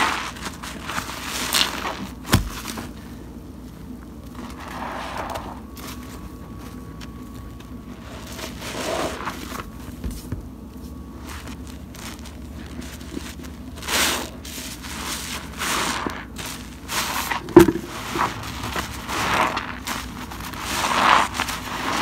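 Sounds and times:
sponges squelching in suds: 0.0 - 3.0, 7.9 - 9.8, 11.1 - 22.0.

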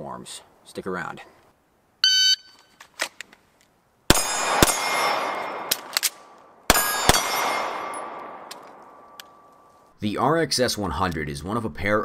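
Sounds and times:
pistol shots with ringing decay: 4.1 - 9.5
holster clicks: 5.7 - 6.4, 8.4 - 9.6.

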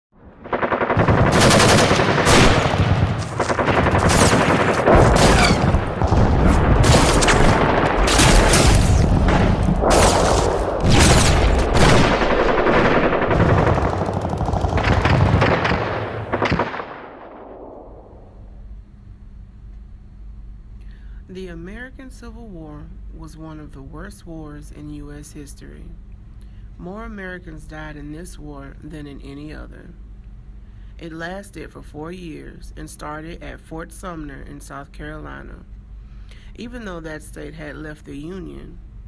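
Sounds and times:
low rumble: 0.2 - 18.9
rapid gunfire: 0.4 - 17.8.

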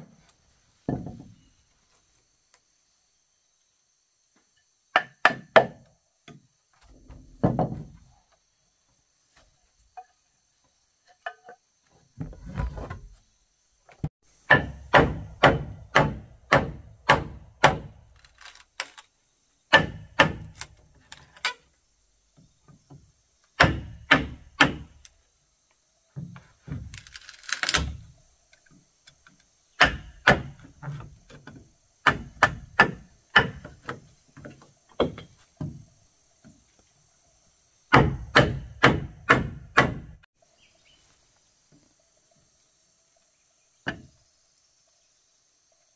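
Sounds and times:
insects chirping: 0.0 - 45.9
hammer striking wood: 4.9 - 6.4, 14.5 - 18.0, 19.7 - 20.6, 23.6 - 25.0, 29.8 - 30.6, 32.0 - 34.0, 37.9 - 40.2.

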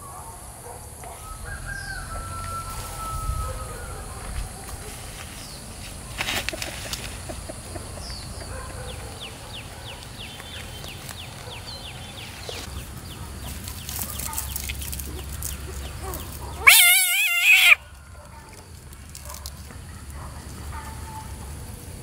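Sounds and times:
faint rustling in grass: 1.0 - 7.6, 9.7 - 16.5
frog distress scream: 16.6 - 17.8.

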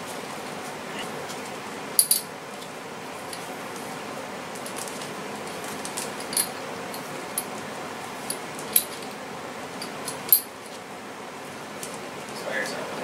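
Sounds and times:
light metallic clinks and rattles: 2.0 - 2.3, 5.4 - 7.5, 8.3 - 9.1, 9.8 - 10.7.

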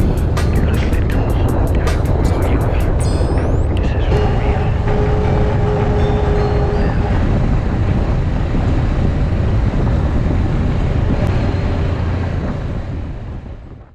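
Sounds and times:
off-road vehicle rumble: 0.0 - 13.9
wind buffeting microphone: 0.0 - 13.9.

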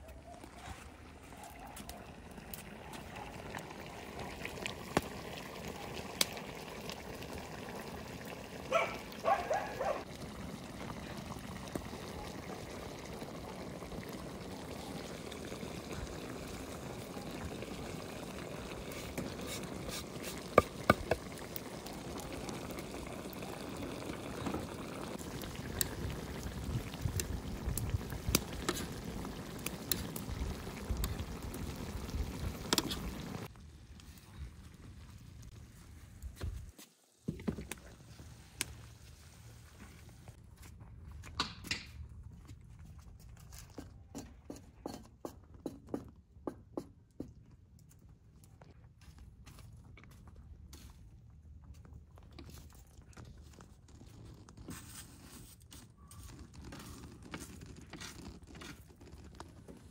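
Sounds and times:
liquid bubbling and trickling: 0.8 - 36.2, 51.6 - 59.9.

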